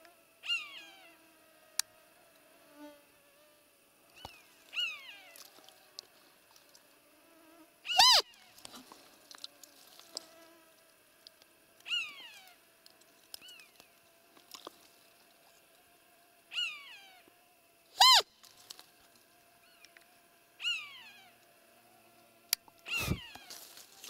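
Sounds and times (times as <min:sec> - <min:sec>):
sharp squeak: 0:07.9 - 0:08.2, 0:18.0 - 0:18.3
deer lure call peeps: 0:07.9 - 0:08.3, 0:18.0 - 0:18.3, 0:22.8 - 0:23.6.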